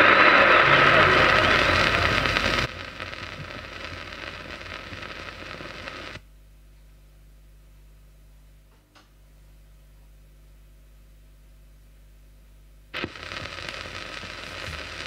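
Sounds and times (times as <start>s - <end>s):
recorded sound from record: 0.0s - 6.7s, 12.9s - 15.0s
record surface hiss and crackle: 0.0s - 11.3s, 12.4s - 15.0s
faint steady hum: 0.0s - 15.0s.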